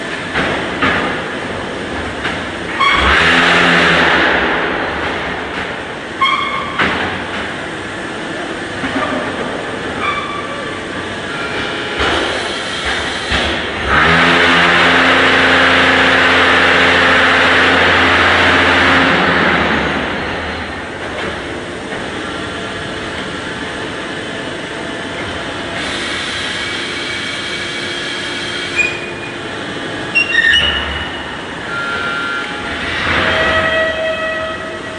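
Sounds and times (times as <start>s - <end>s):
steady machine noise: 0.0s - 34.9s.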